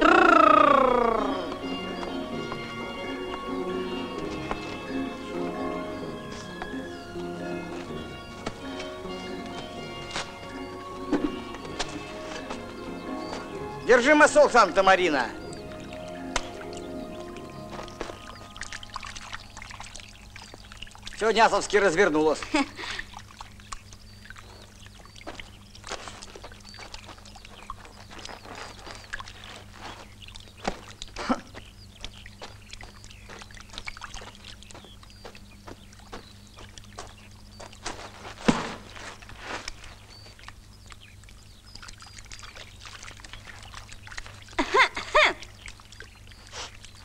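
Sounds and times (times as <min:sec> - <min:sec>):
animal calls rising and falling: 0:00.0 - 0:02.2
small birds chirping: 0:00.0 - 0:47.0.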